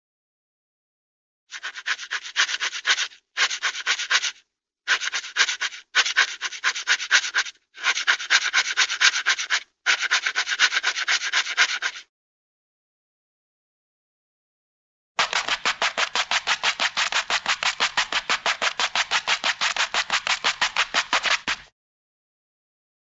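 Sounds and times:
cartoon scratchy rasping strokes: 0:01.5 - 0:12.1, 0:15.2 - 0:21.7.

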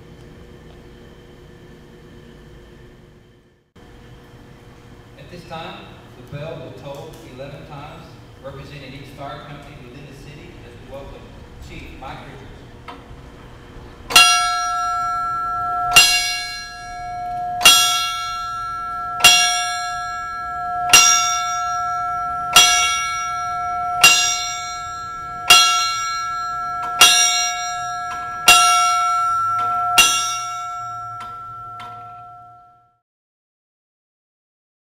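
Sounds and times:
fire bell struck by hand: 0:14.1 - 0:33.0.

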